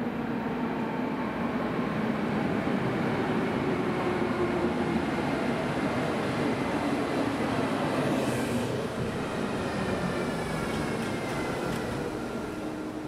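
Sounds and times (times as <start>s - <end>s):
train wheels rumbling on rails: 3.2s - 13.0s.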